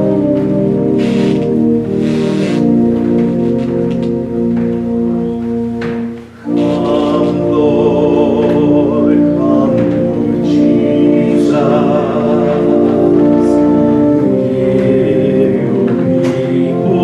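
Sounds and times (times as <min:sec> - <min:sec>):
voices singing a hymn: 0:00.0 - 0:04.0, 0:04.6 - 0:17.0
instrumental accompaniment: 0:00.0 - 0:17.0.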